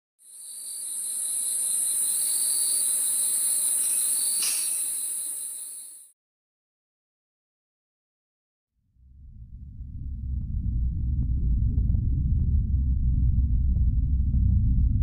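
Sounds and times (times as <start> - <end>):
low insect trill: 0.2 - 6.1
night insects chirring: 0.2 - 6.1.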